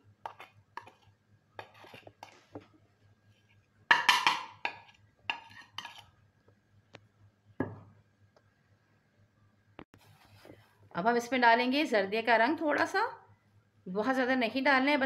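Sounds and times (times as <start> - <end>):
spoon scraping china plate: 0.2 - 2.5, 3.9 - 6.2.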